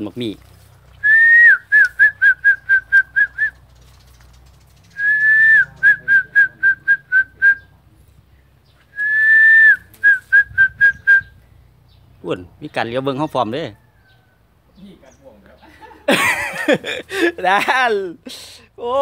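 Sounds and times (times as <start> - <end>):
person whistling: 1.0 - 3.5, 5.0 - 7.6, 8.9 - 11.3.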